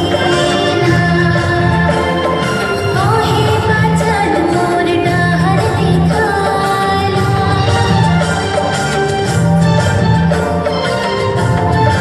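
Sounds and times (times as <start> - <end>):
music with long held notes: 0.0 - 12.0.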